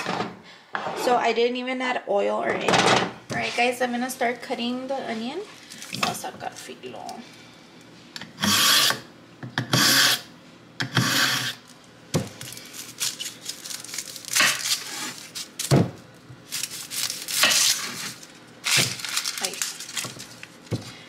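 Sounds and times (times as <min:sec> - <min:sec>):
knife scraping on sharpener: 0:08.4 - 0:09.0, 0:09.7 - 0:10.3, 0:10.9 - 0:11.6
knife cutting through onion: 0:10.9 - 0:11.6.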